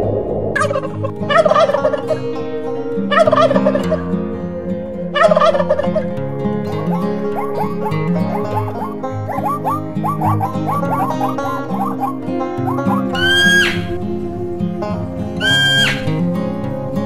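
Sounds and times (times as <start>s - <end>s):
background music: 0.0s - 17.0s
guineafowl harsh cackling: 3.1s - 4.2s, 5.2s - 6.1s, 6.7s - 14.0s, 15.4s - 16.2s.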